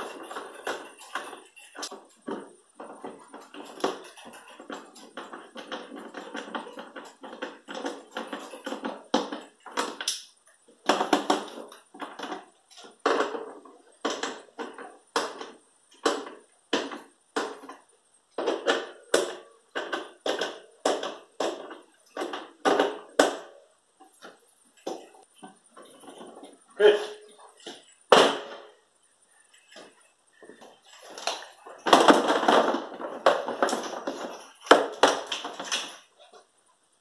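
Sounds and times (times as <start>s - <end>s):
screws scraping and crunching: 0.0s - 10.3s, 28.8s - 36.1s.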